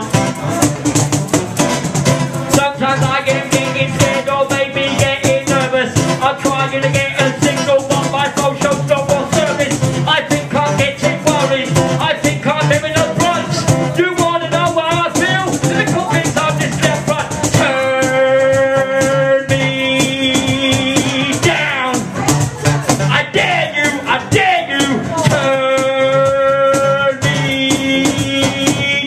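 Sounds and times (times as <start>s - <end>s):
electric guitar: 0.0s - 29.0s
rattling shaker rhythm: 0.0s - 29.0s
person rapping into a microphone: 2.5s - 29.0s
person singing long notes: 15.2s - 22.4s, 23.2s - 29.0s.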